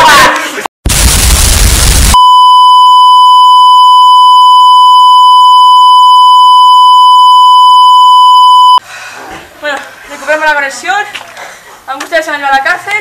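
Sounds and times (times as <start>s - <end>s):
steady test tone beep: 2.2s - 8.8s.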